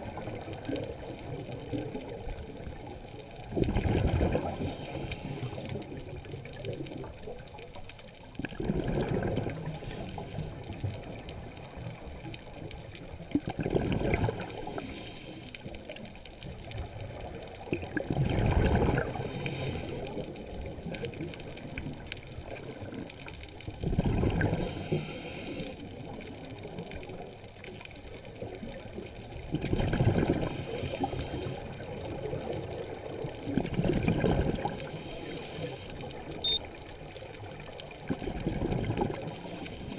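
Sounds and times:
bubbling underwater exhalation: 3.5s - 4.6s, 8.4s - 9.8s, 13.3s - 14.6s, 17.7s - 19.4s, 23.8s - 24.8s, 29.5s - 30.6s, 33.5s - 35.0s.

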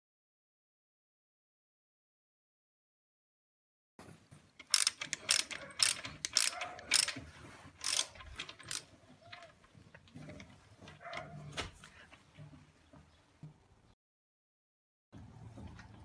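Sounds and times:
ratchet wrench clicking: 4.6s - 7.2s, 7.8s - 8.9s.

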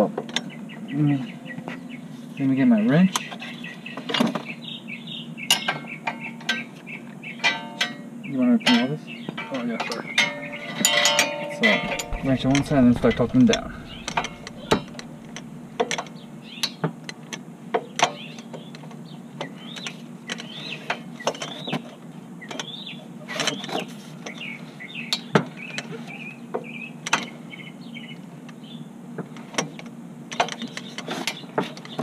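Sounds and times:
birds chirping: 11.8s - 16.8s.

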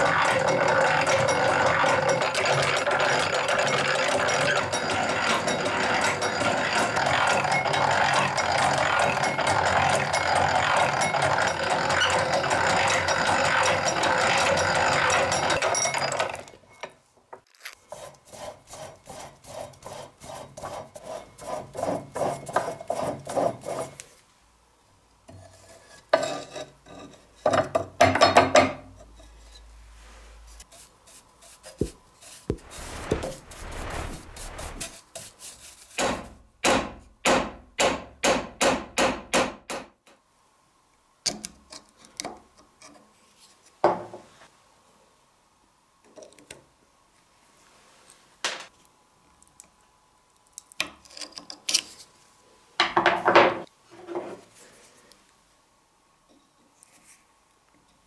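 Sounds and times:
hand tool rasping wood: 0.0s - 15.3s, 17.9s - 23.9s.

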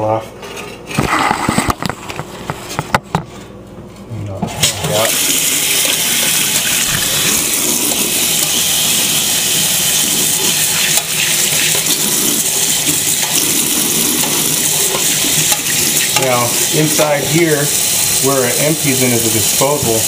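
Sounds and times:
faucet water running into sink: 4.8s - 20.0s.

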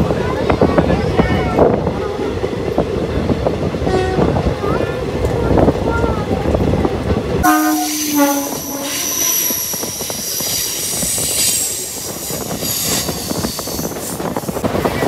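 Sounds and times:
train passing rush and clatter: 0.0s - 15.0s
train horn hoots: 3.9s - 4.4s, 7.4s - 10.0s
high wheel squeal: 7.5s - 14.4s.

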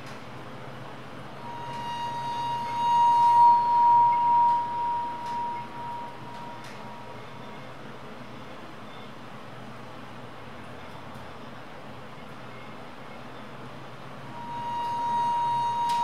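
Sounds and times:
pure ringing tone: 1.4s - 7.7s, 14.3s - 16.0s.

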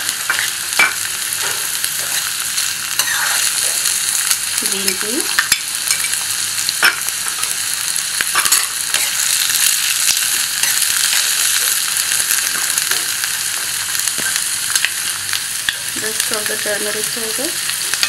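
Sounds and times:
vegetables sizzling in oil: 0.0s - 18.0s
steel spoon scraping pan: 3.0s - 3.5s.

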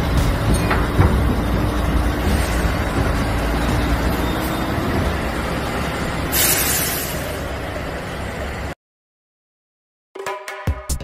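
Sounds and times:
truck diesel engine rumbling: 0.0s - 8.8s.

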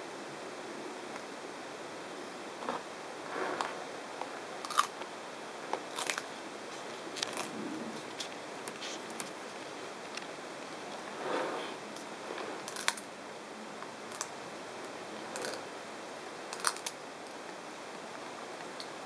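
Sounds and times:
tortoise chewing cactus: 4.6s - 5.1s, 5.7s - 13.1s
crisp snaps: 12.0s - 13.1s, 13.8s - 14.4s, 15.4s - 15.6s, 16.5s - 17.6s.

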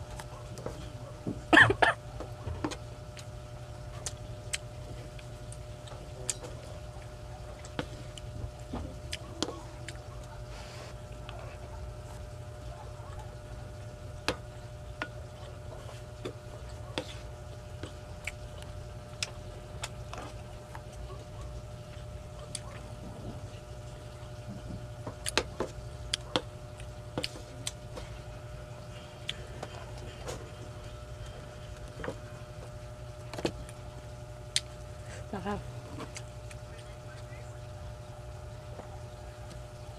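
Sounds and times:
chewing: 3.9s - 13.3s, 15.0s - 33.9s.

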